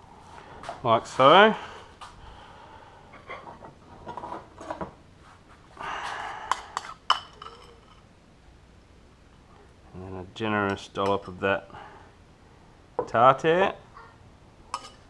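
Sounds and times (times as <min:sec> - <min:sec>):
kitchenware clatter: 0:06.8 - 0:08.0, 0:14.7 - 0:15.0
knife clinking against bowl: 0:14.8 - 0:15.0.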